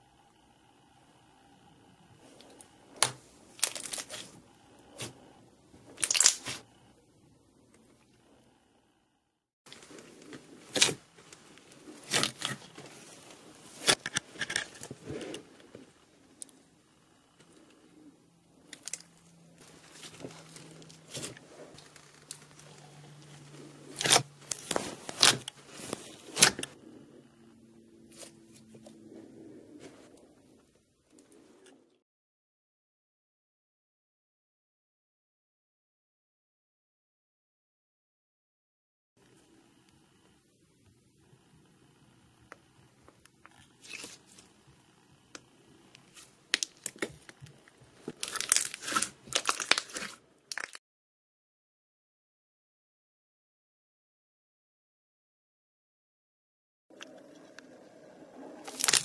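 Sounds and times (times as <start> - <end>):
slime crackling and popping: 6.0 - 6.6, 48.1 - 50.8, 58.6 - 59.0.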